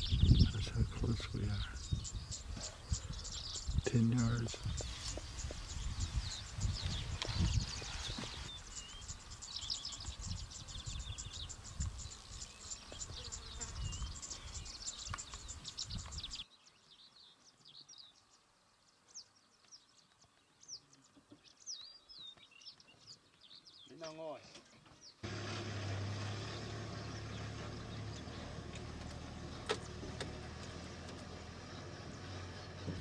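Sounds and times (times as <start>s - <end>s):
wind rumble on microphone: 0.0s - 12.4s
birds calling: 0.0s - 18.4s, 19.0s - 33.0s.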